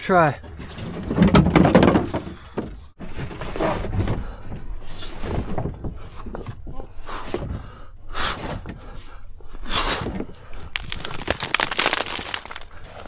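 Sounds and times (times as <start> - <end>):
strained breathing: 4.0 - 11.1.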